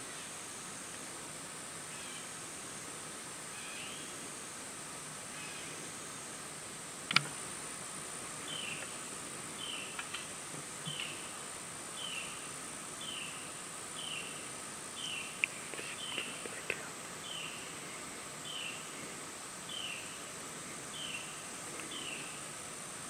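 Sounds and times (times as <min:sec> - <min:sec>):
insects droning: 0:00.0 - 0:23.0
sharp click: 0:07.1 - 0:07.4.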